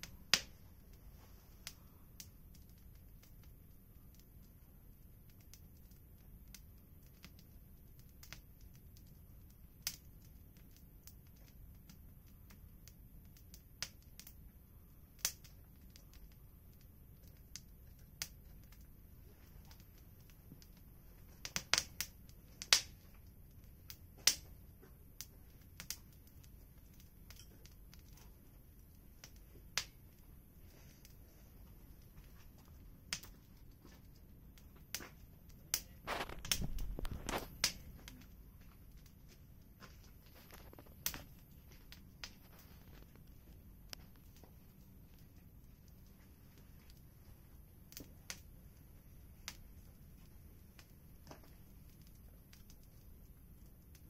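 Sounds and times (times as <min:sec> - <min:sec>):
faint steady background noise: 0:00.0 - 0:54.0
wood fire crackling and popping: 0:00.0 - 0:54.0.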